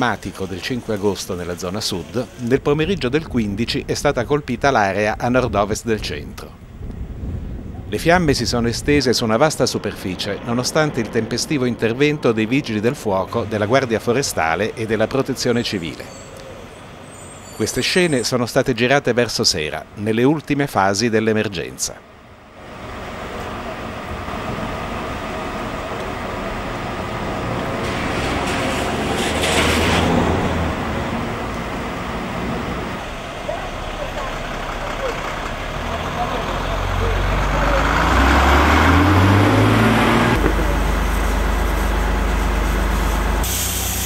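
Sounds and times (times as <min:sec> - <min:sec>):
rushing rumbling fire hosing: 0:00.0 - 0:09.8, 0:22.6 - 0:44.0
diesel engine running: 0:22.5 - 0:44.0
hiss: 0:27.8 - 0:30.1, 0:41.1 - 0:44.0.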